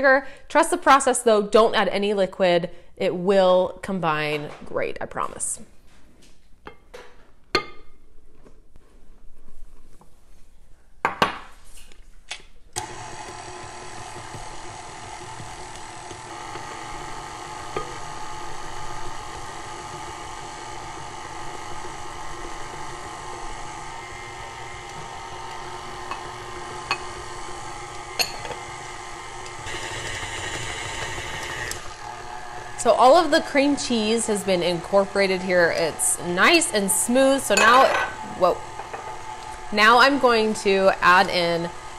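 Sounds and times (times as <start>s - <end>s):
stand mixer motor running: 12.8s - 36.9s, 38.3s - 41.9s.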